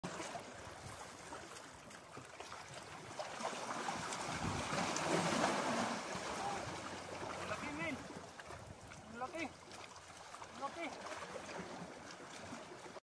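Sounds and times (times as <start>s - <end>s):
waves lapping against rocks: 0.0s - 13.0s
wind buffeting microphone: 4.2s - 5.0s.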